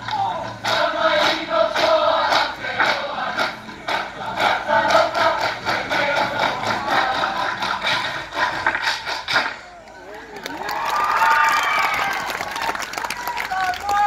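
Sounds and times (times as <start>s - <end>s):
group singing and chanting: 0.0s - 9.6s
sharp rhythmic claps: 0.0s - 14.0s.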